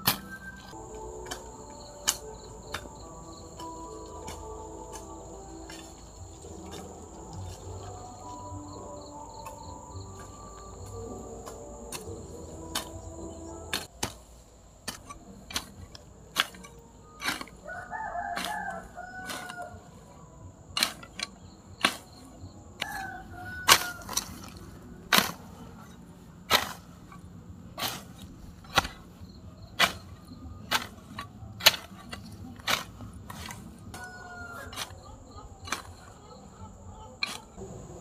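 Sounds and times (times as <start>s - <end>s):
hand tool striking bamboo: 0.0s - 19.7s, 20.8s - 27.2s, 27.8s - 29.1s, 29.7s - 36.2s
high insect drone: 0.7s - 13.8s
rooster crowing: 17.6s - 20.2s, 22.8s - 24.6s, 33.9s - 38.0s.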